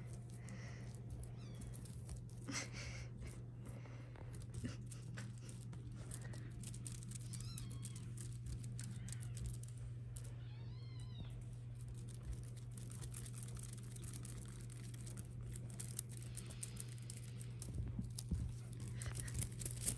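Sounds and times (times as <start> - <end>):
scrabbling and rustling: 0.0 - 19.9
steady low hum: 0.0 - 19.9.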